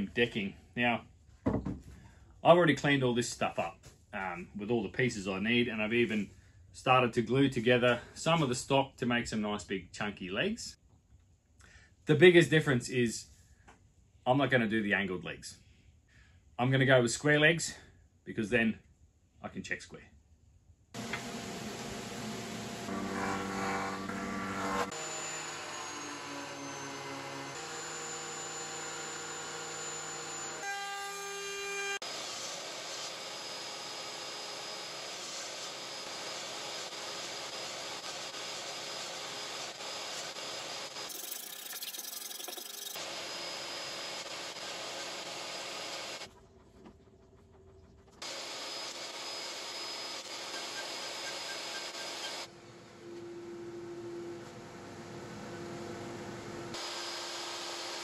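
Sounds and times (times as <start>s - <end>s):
woodworking machines cutting wood: 21.0s - 46.3s, 48.2s - 52.5s, 56.7s - 58.0s.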